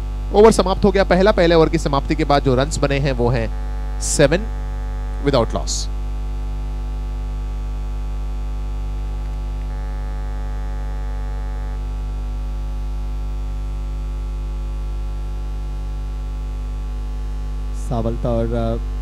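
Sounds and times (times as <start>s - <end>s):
electrical mains hum with buzz: 0.0s - 19.0s.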